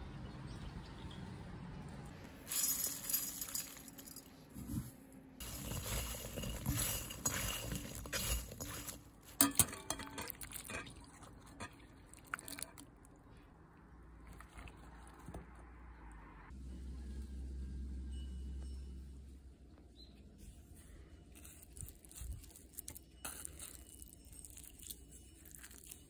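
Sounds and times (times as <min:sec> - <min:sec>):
bitter melon rustling in bowl: 0:04.5 - 0:09.5, 0:21.0 - 0:26.0
metal skimmer clinking on glass: 0:05.4 - 0:11.0.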